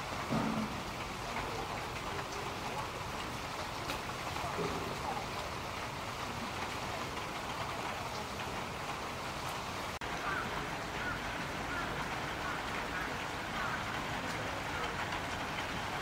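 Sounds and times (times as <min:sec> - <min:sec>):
steady rain falling: 0:00.0 - 0:16.0.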